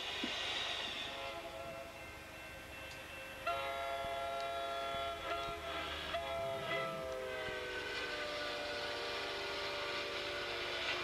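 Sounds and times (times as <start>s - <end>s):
train running: 0.0s - 11.0s
multi-tone train horn: 1.0s - 2.1s, 3.4s - 11.0s.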